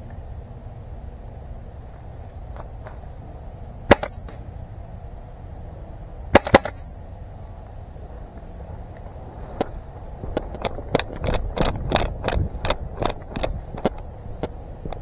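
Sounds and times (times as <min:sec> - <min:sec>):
low rumble: 0:00.0 - 0:15.0
airsoft gun shots: 0:03.9 - 0:04.5, 0:06.3 - 0:06.9.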